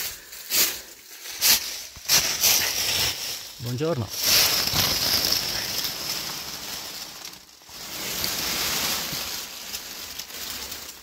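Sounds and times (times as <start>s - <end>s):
dry leaves rustling and crunching: 0.0s - 11.0s.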